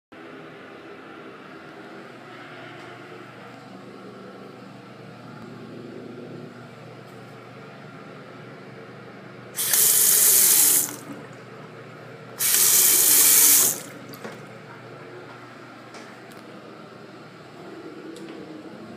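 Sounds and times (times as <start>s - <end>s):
faint room hum: 0.2s - 18.9s
faucet running into a sink: 9.6s - 11.1s, 12.4s - 14.2s.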